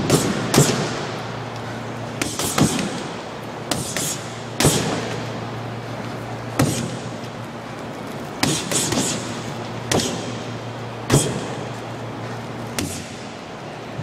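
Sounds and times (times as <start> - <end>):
gloves punching heavy bag: 0.0 - 1.2, 2.2 - 5.2, 6.5 - 7.2, 8.4 - 10.4, 11.0 - 11.7, 12.7 - 13.2
steady low hum: 0.0 - 14.0.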